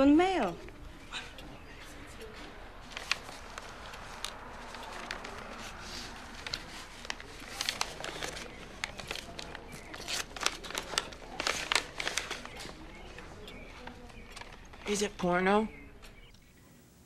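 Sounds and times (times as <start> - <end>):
paper crinkling and rustling: 1.9 - 15.4.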